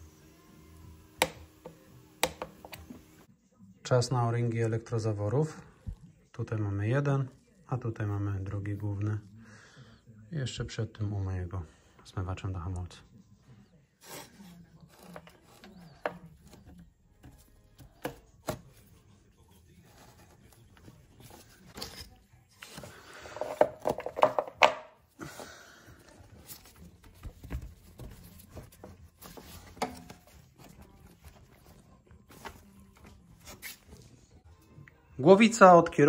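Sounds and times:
tools and parts clicking and knocking: 23.4s - 24.9s.

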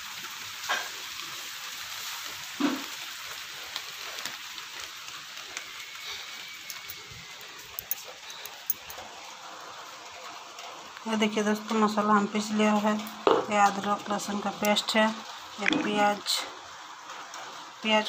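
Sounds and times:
light rain falling: 0.0s - 18.0s
drips and clicks: 15.6s - 16.3s.

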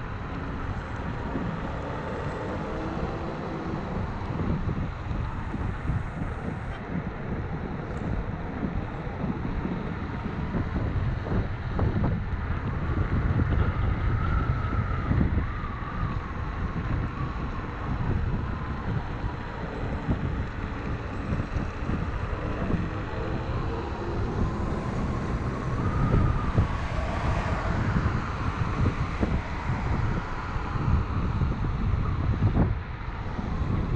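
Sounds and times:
scooter road rumble: 0.0s - 33.9s
wind buffeting microphone: 0.0s - 33.9s
electric motor whine: 18.1s - 31.1s.

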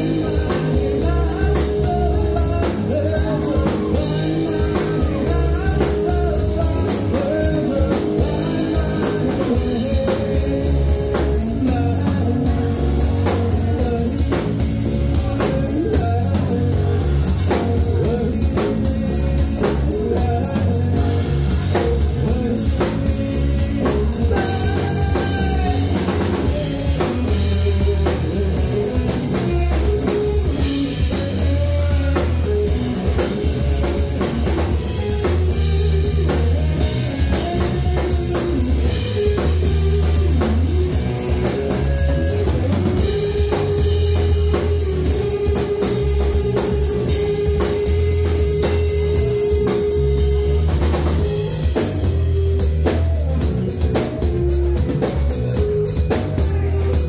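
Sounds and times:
drum kit: 0.0s - 57.0s
electric guitar lead lines: 0.0s - 57.0s
heavy bass: 0.0s - 57.0s
keyboards: 0.0s - 57.0s.

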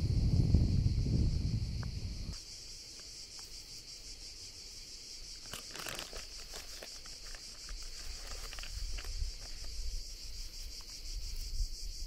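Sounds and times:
insects buzzing: 0.0s - 12.0s
crinkling crackling clicks: 5.4s - 9.8s.

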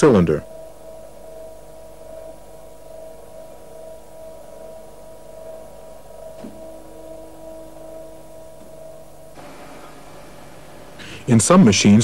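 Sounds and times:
machinery humming: 0.0s - 12.0s.

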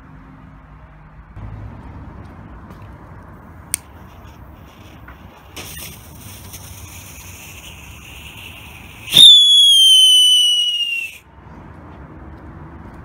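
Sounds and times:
fuse hissing: 4.1s - 11.0s
shrieking firework whistle: 5.6s - 11.2s.

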